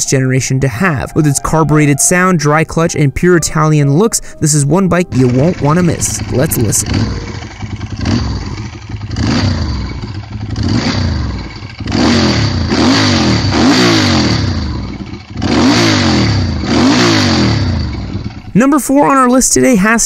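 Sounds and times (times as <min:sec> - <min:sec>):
motorcycle engine revving: 0:05.0 - 0:18.7.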